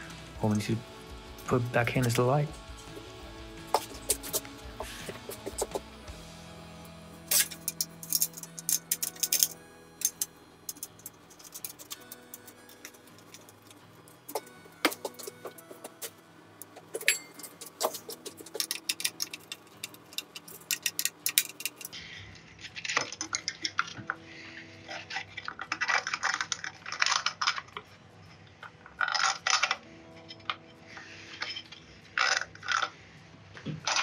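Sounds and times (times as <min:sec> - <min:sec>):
small metallic clicks: 0:07.3 - 0:15.6, 0:16.6 - 0:22.0
metal scraping and rattling: 0:07.3 - 0:24.2.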